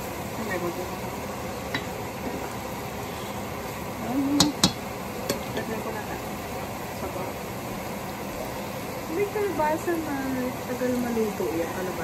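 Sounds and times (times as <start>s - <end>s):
cooking pan hiss: 0.0s - 12.0s
spatula stirring vegetables in pan: 1.4s - 9.0s
spatula knocking on metal pan: 4.4s - 5.7s.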